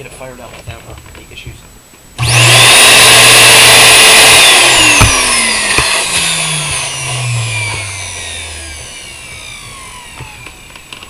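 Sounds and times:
vacuum cleaner motor whining: 0:02.2 - 0:11.0.

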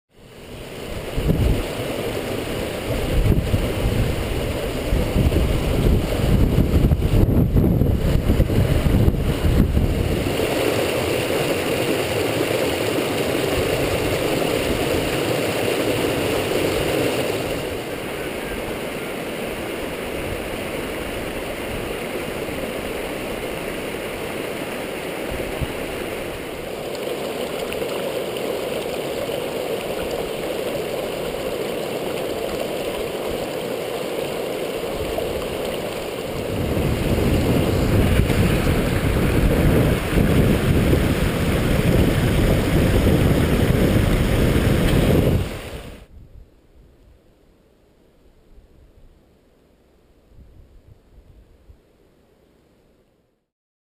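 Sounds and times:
creek rushing over boulders: 0:00.1 - 0:46.1
low rumble on microphone: 0:36.4 - 0:47.1.

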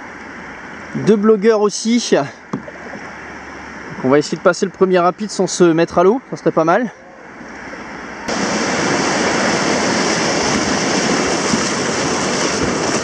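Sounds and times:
whitewater rushing: 0:07.2 - 0:13.0.

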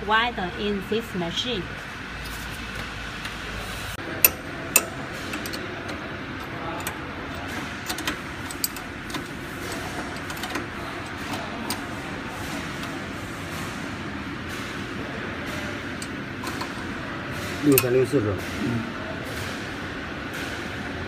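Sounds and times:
steady background hum: 0:00.0 - 0:21.0
hand tools clicking on metal: 0:04.2 - 0:11.9.

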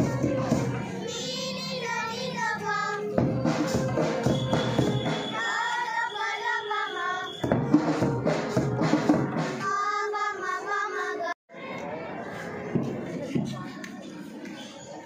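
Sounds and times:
children singing: 0:00.0 - 0:12.4
drum kit: 0:03.2 - 0:05.4, 0:07.4 - 0:09.8.

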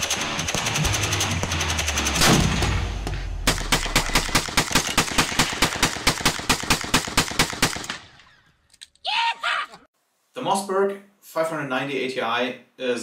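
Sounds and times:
rapid automatic gunfire: 0:00.0 - 0:02.9, 0:03.5 - 0:08.0.

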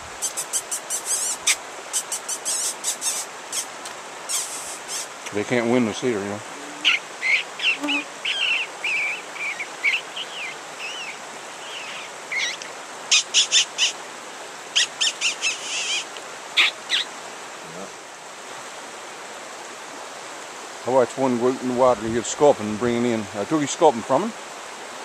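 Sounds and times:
small animal chirping and squeaking: 0:00.2 - 0:03.7, 0:04.3 - 0:05.1, 0:06.6 - 0:13.9, 0:14.8 - 0:17.1.

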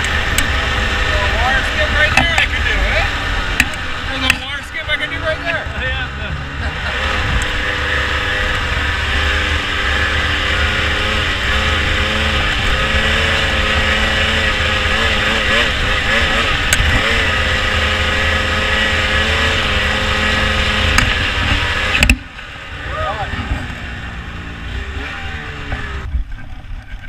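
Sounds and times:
snowmobile two-stroke engine: 0:00.0 - 0:27.0.

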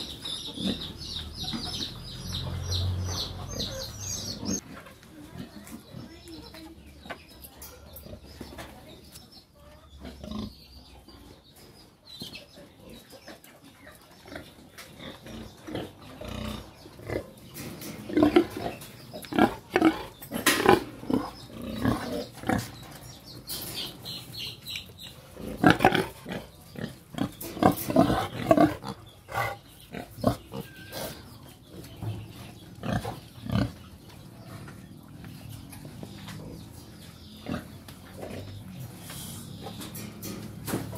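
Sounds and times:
pigs grunting: 0:00.0 - 0:06.2, 0:10.0 - 0:10.6, 0:14.2 - 0:22.8, 0:25.3 - 0:40.1.

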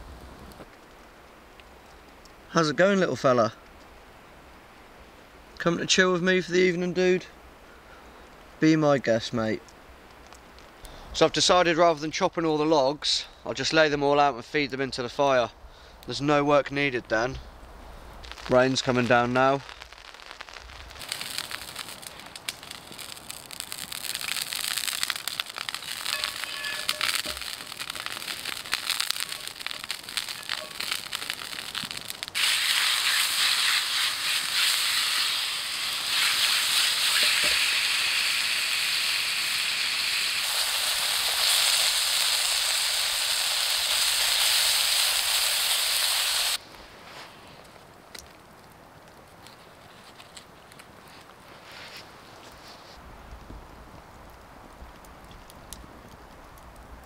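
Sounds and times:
campfire crackling and popping: 0:00.0 - 0:02.6, 0:03.6 - 0:05.7, 0:09.5 - 0:11.4, 0:17.4 - 0:46.9, 0:47.5 - 0:51.5, 0:52.5 - 0:57.0
loud sizzling hiss: 0:18.1 - 0:47.0.

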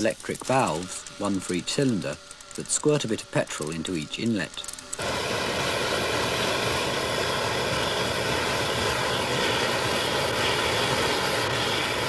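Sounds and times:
roar of burning fuel flames: 0:04.9 - 0:12.0.

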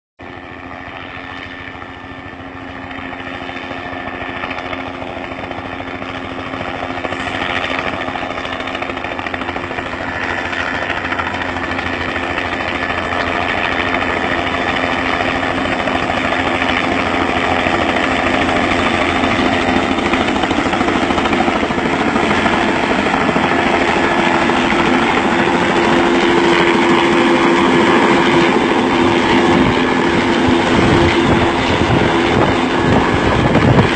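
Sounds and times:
helicopter rotor and engine: 0:00.2 - 0:33.9.

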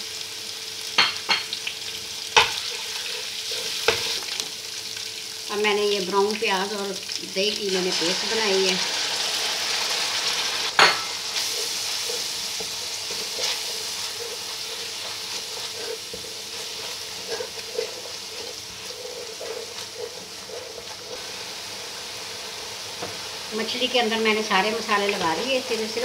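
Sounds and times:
paste sizzling in hot oil: 0:00.0 - 0:26.0
spatula scraping pan: 0:02.4 - 0:04.4, 0:10.7 - 0:23.2.

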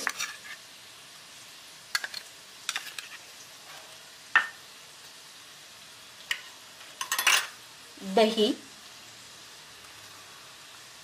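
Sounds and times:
spoon clinking on steel bowls: 0:07.0 - 0:07.5.

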